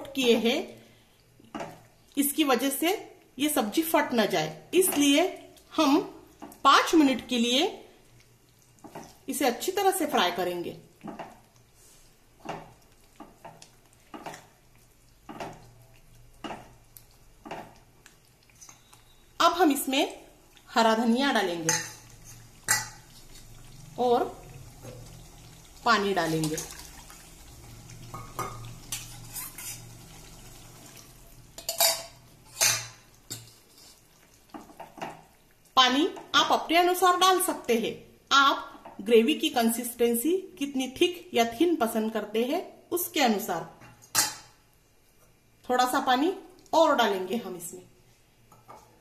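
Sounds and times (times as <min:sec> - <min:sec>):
curry frying: 0:00.0 - 0:49.0
spoon scraping in steel bowl: 0:18.5 - 0:19.2, 0:28.2 - 0:29.9
spatula scraping a pan: 0:18.5 - 0:19.3, 0:21.7 - 0:23.6, 0:28.2 - 0:30.0, 0:31.6 - 0:35.0
water pouring into pan: 0:22.0 - 0:35.4.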